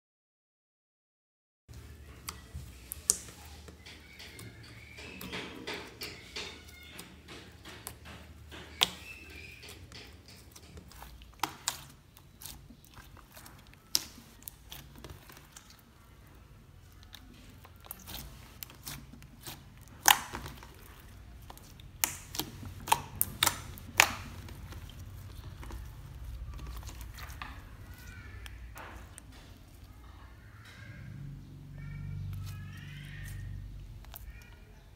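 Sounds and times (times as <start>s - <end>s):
slime squishing: 1.7s - 34.9s
slime popping: 10.4s - 15.9s, 16.8s - 30.0s.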